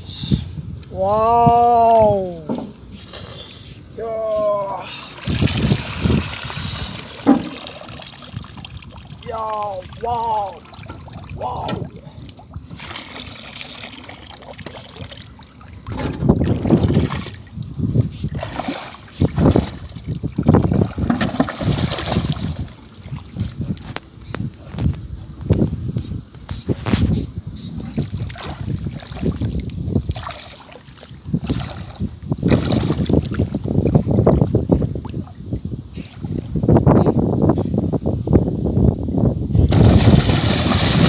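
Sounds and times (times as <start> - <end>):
wind on microphone: 0.0 - 13.1, 15.0 - 41.0
water sloshing and splashing: 4.4 - 24.0, 27.8 - 36.6, 39.7 - 41.0
water pouring into water: 4.6 - 22.8, 39.7 - 41.0.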